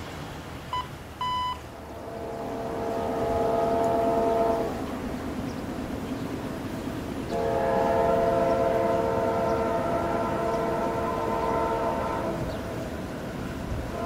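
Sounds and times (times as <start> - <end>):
train rumble: 0.0 - 14.0
locomotive air horn blasts: 1.2 - 5.4, 7.2 - 14.0.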